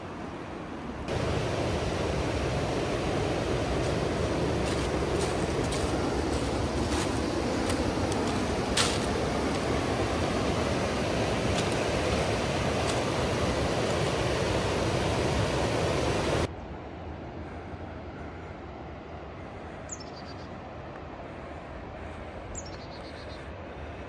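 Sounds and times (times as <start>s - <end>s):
whitewater rapids rushing: 1.1s - 16.5s.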